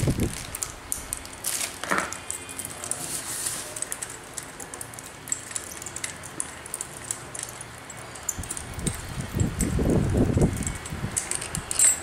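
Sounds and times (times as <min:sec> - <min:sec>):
small clicks and taps on metal: 0:03.8 - 0:12.0.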